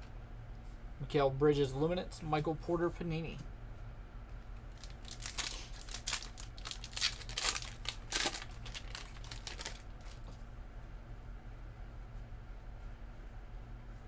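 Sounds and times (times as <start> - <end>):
wrapper crinkling and tearing: 4.7 - 10.3.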